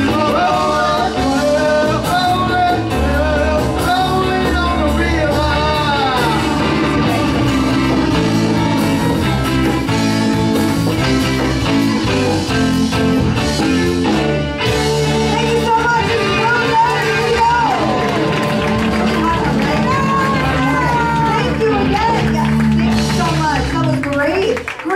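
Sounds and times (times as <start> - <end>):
man singing into a microphone: 0.0 - 7.4
live rock band: 0.0 - 24.8.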